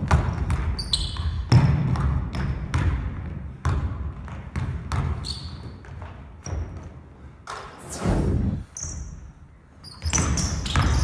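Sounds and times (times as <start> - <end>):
basketball bouncing on wooden floor: 0.0 - 7.0
sneaker squeaks: 0.4 - 1.6, 4.9 - 6.8, 8.7 - 11.0.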